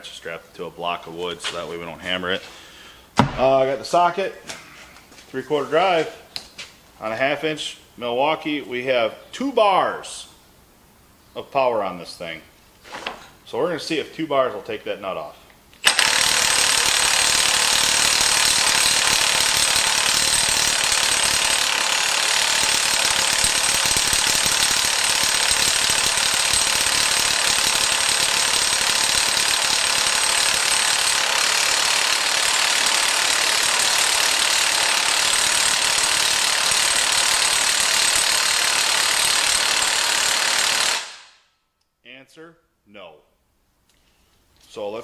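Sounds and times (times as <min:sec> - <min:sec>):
impact wrench hammering: 0:03.2 - 0:03.6, 0:15.8 - 0:41.3.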